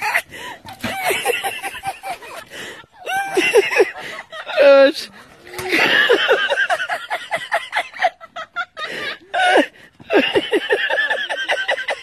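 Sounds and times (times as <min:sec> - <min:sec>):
hearty laughter: 0:00.0 - 0:04.9, 0:05.6 - 0:12.0.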